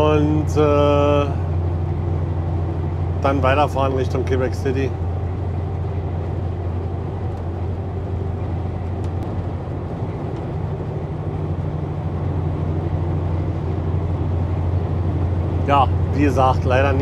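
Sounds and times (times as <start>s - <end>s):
road noise: 0.0s - 17.0s
truck engine drone: 0.0s - 17.0s.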